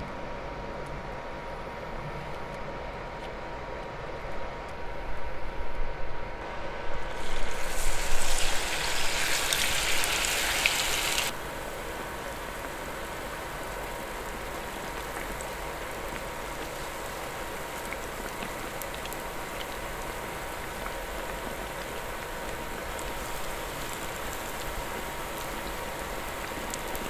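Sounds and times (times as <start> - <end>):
food sizzling in hot oil: 6.9 - 27.0.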